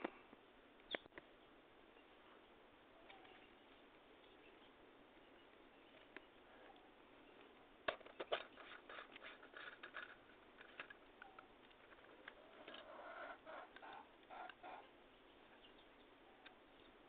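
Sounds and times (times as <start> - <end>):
flashlight clicks and rattling: 7.9 - 12.9.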